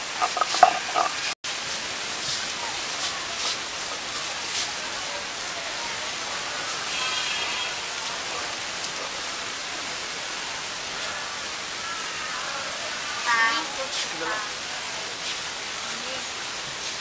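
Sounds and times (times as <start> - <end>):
stone roller grinding on stone: 0.0 - 1.4.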